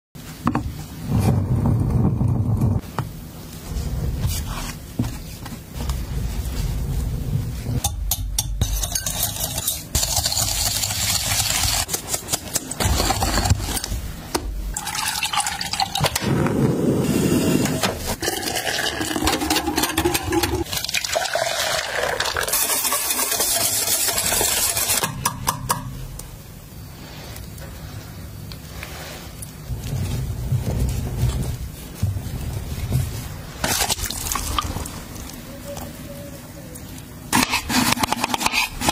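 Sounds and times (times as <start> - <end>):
whisk clinking against glass bowl: 7.8 - 11.1
whisk stirring in metal saucepan: 7.8 - 13.9, 18.2 - 25.8
milk pouring: 14.8 - 16.1, 18.2 - 19.9, 20.6 - 23.2.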